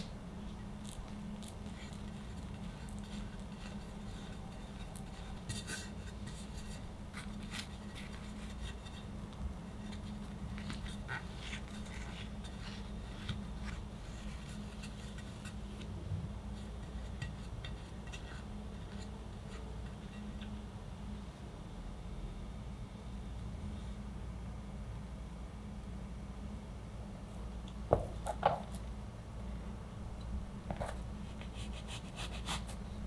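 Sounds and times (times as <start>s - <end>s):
steady low hum: 0.0s - 33.0s
spatula scraping cream: 0.7s - 15.9s, 16.5s - 20.6s.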